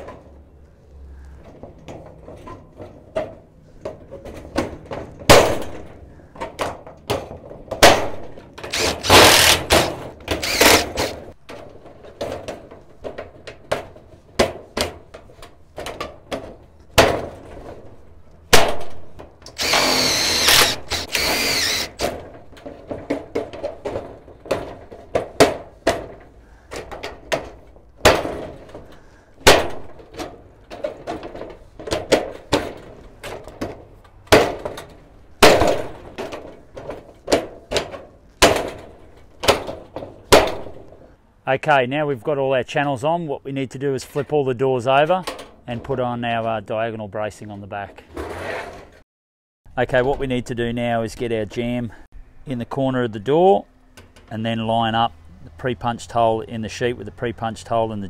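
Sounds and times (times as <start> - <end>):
cordless drill driving screws: 8.6 - 11.2, 19.5 - 22.1.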